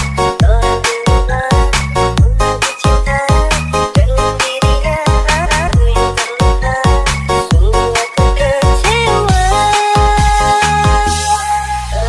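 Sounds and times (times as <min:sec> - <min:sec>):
electronic dance music: 0:00.0 - 0:12.0
heavy kick drum: 0:00.4 - 0:11.1.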